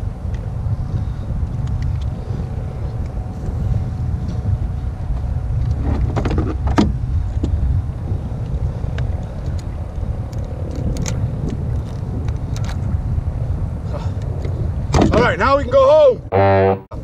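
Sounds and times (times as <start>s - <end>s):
wind rumbling on microphone: 0.0s - 17.0s
knocks and clicks of gear: 5.1s - 7.6s.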